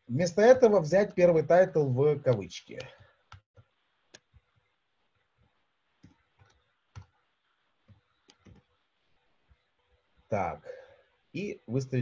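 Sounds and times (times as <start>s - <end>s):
computer keys clicking: 6.0s - 7.2s, 7.9s - 8.7s.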